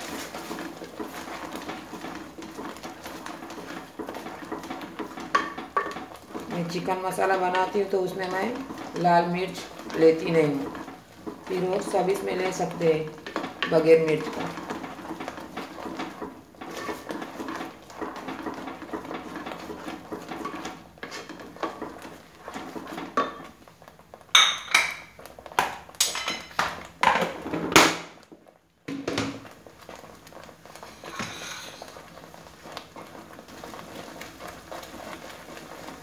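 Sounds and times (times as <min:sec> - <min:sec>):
wooden spatula scraping a pot: 0:00.0 - 0:27.7, 0:28.3 - 0:36.0
utensils clinking against pot: 0:24.4 - 0:25.1.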